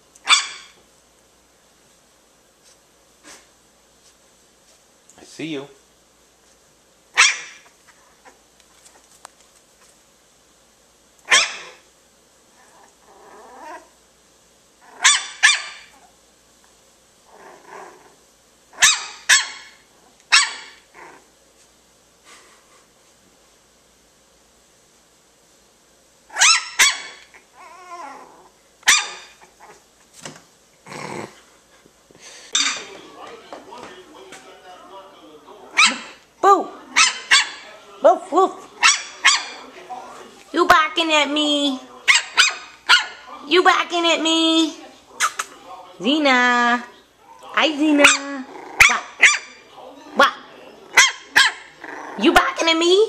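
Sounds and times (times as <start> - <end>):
puppy barking: 0.2 - 0.8, 7.1 - 7.7, 11.3 - 11.8, 14.8 - 16.0, 18.8 - 20.8, 26.3 - 27.3, 28.8 - 29.4, 35.7 - 36.2, 36.9 - 37.7, 38.8 - 39.7, 42.0 - 43.3, 48.0 - 49.6, 50.9 - 51.8
puppy growling: 12.5 - 14.0, 14.8 - 15.1, 17.2 - 18.3, 19.9 - 21.4, 26.3 - 29.9, 30.8 - 31.6, 46.9 - 52.6.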